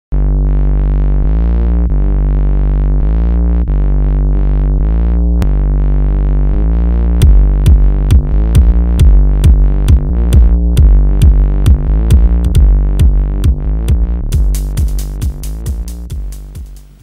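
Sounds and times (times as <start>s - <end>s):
steady bass: 0.0s - 17.0s
synthesizer chords: 0.1s - 17.0s
drum-machine beat: 6.9s - 17.0s.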